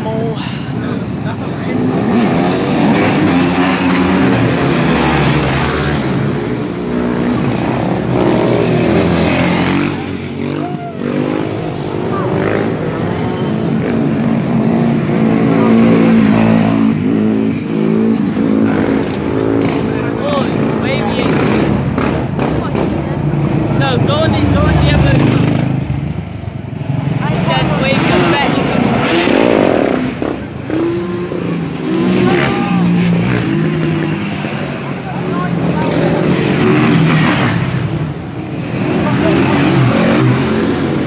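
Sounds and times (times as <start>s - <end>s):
dirt bike engine revving: 1.2s - 41.0s.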